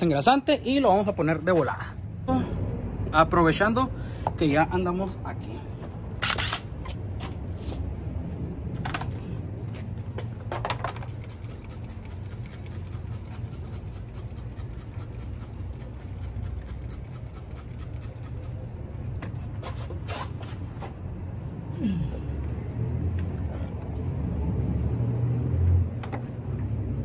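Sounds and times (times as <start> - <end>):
low mechanical rumble: 0.0 - 27.0
spray bottle squirts: 11.0 - 18.6.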